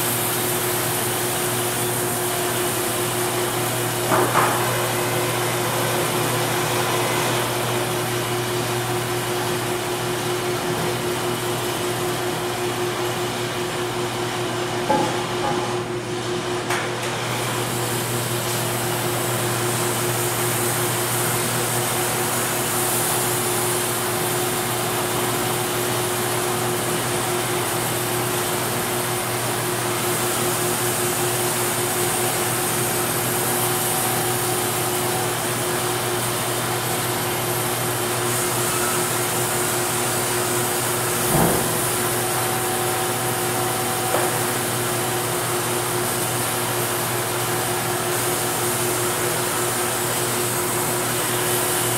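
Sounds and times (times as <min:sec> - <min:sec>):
thump: 0:41.3 - 0:41.8.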